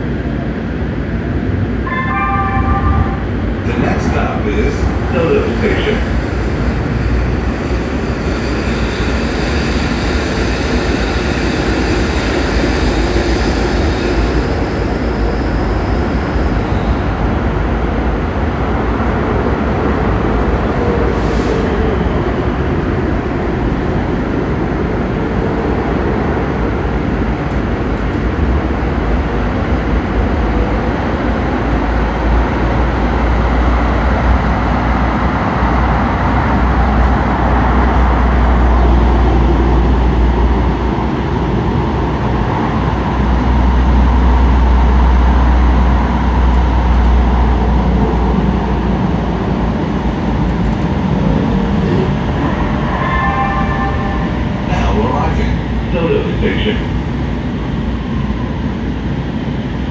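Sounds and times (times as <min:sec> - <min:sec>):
train wheels rumbling on rail: 0:00.0 - 0:59.9.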